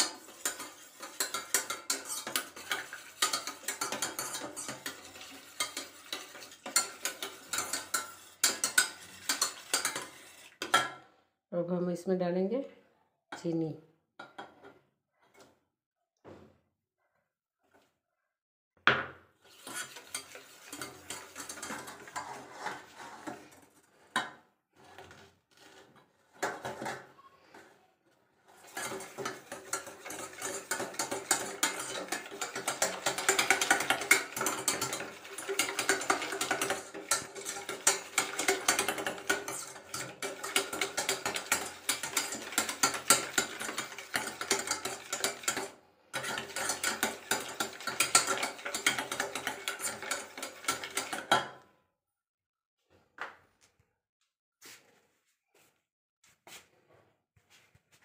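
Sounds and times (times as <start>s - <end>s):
whisk clattering in metal bowl: 0.0s - 11.0s, 19.5s - 24.3s, 28.5s - 51.6s
knocks and scrapes on steel bowl: 0.0s - 11.1s, 14.2s - 15.6s, 19.5s - 27.8s, 28.4s - 51.6s.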